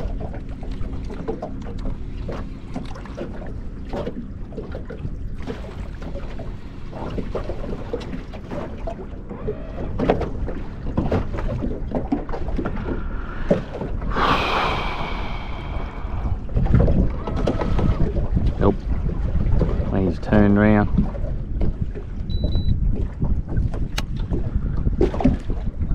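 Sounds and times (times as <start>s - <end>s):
water lapping against hull: 0.0s - 25.9s
wind on microphone: 9.8s - 25.9s.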